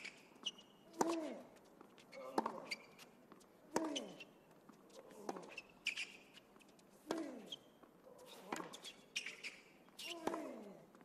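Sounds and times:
shoe squeaks: 0.0s - 3.2s, 3.9s - 6.8s, 7.4s - 10.3s.

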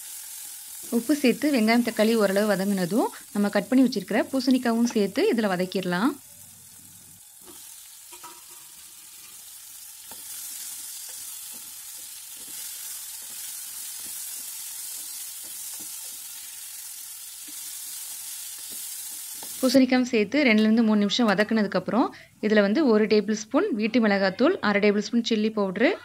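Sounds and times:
vegetables sizzling in hot oil: 0.0s - 20.6s.

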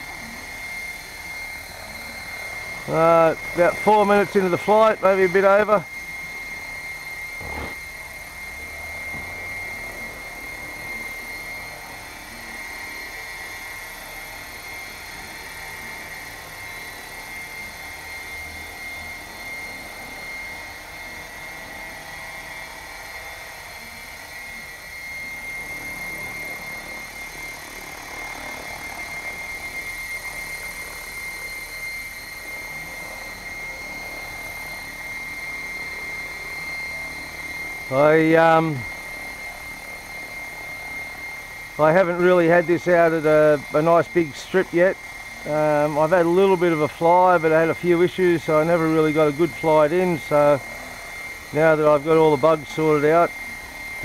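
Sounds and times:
rc helicopter hovering whine: 0.0s - 54.0s
rotor whoosh: 7.3s - 8.1s.

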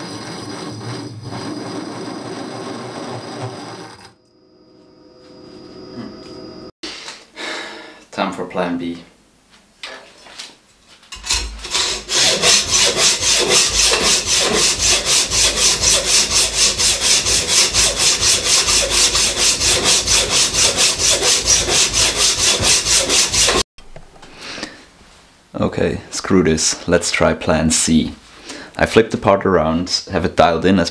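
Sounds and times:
hacksaw cutting steel: 11.2s - 23.6s.

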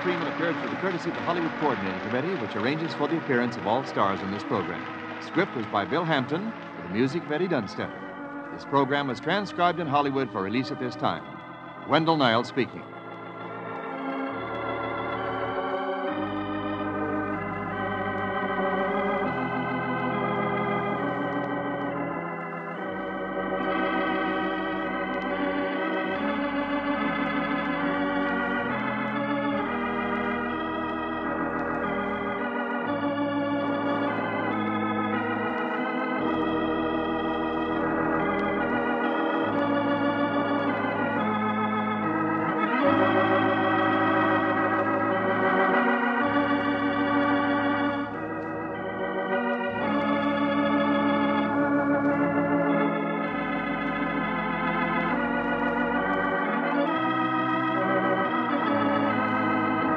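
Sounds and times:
deep organ bass pedal notes: 0.0s - 59.9s
organ playing slow chords: 0.0s - 59.9s.

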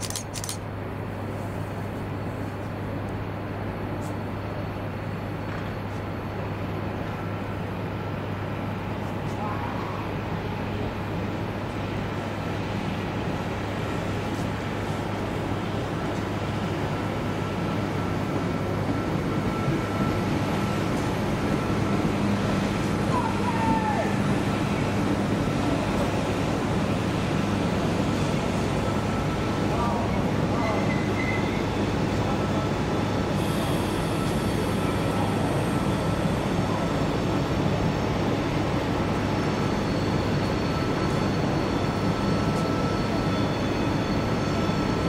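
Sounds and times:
sharp clicks: 0.0s - 0.6s
train rumbling: 0.0s - 45.0s
falling squeal: 30.7s - 31.7s.

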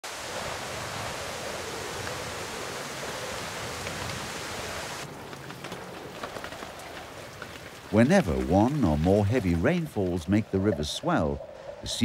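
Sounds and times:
heavy rain falling: 0.0s - 12.0s
drops ticking on leaves: 5.0s - 11.1s.

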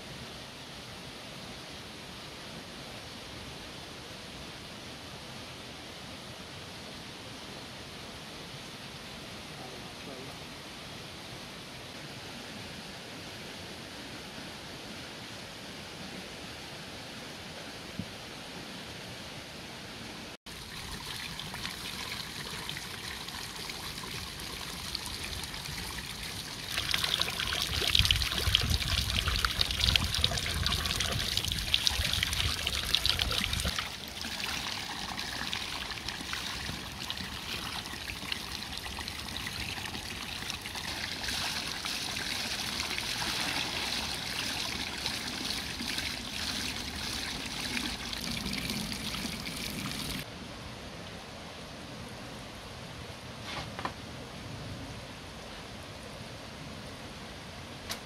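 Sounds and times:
water trickling into basin: 20.5s - 50.2s.

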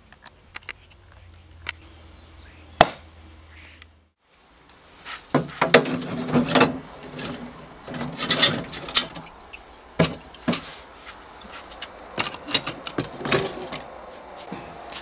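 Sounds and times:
liquid splashing and dripping: 6.8s - 12.9s.

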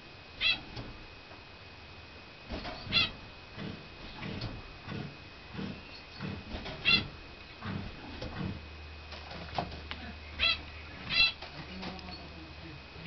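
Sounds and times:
small animal squeaks: 0.4s - 0.7s, 2.8s - 3.2s, 6.8s - 7.1s, 10.4s - 11.4s.

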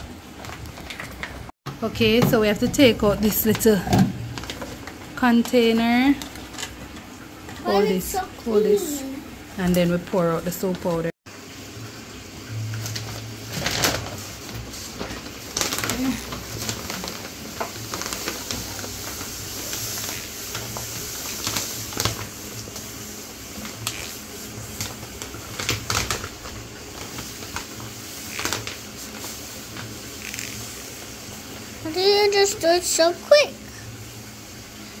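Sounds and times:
plastic bag crackling: 12.6s - 31.4s
detergent granules pouring: 12.8s - 34.0s.

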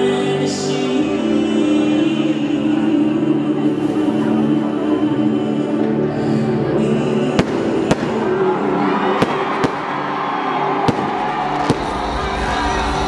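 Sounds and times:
fireworks banging: 7.4s - 8.4s, 9.2s - 9.9s, 10.9s - 12.2s.

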